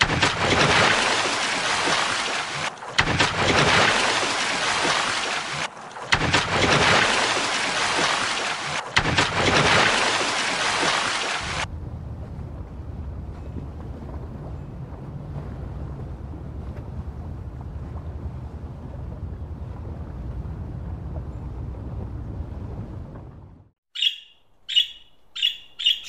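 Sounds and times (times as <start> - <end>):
loud rushing water: 0.0 - 11.7
low rumble: 11.5 - 23.8.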